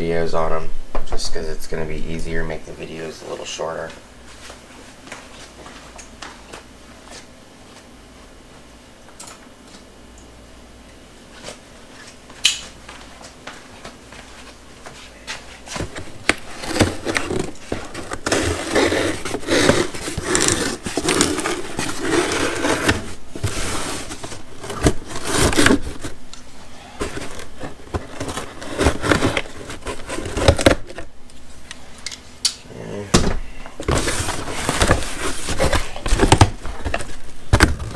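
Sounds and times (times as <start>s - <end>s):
cardboard scraping and rustling: 15.4s - 26.2s, 27.0s - 31.1s, 33.8s - 37.9s.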